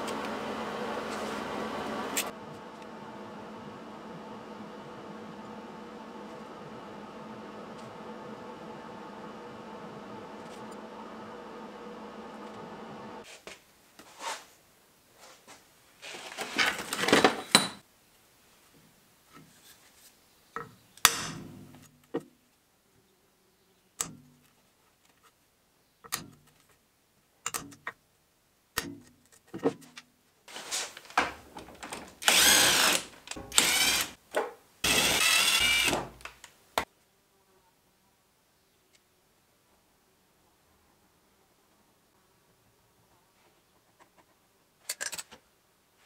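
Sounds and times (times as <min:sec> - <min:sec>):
power tool running in bursts: 0:00.0 - 0:13.2, 0:32.2 - 0:34.2, 0:34.8 - 0:36.2.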